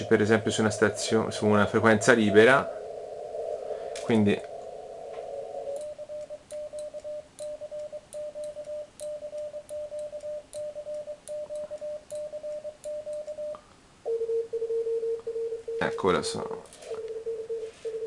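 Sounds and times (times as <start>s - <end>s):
receiver hiss: 0.0s - 7.6s
steady low tone: 0.0s - 15.5s
morse code tone: 16.9s - 18.0s.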